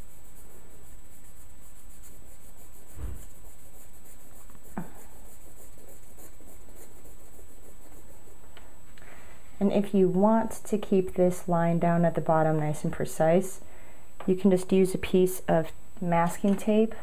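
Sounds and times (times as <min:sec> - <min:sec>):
pencil scratching on paper: 0:00.0 - 0:08.4.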